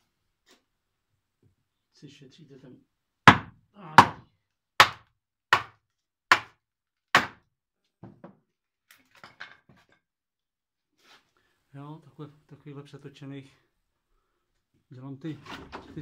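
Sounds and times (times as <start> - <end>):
wooden mallet hammering: 3.3 - 4.2, 4.8 - 6.6, 7.2 - 7.4.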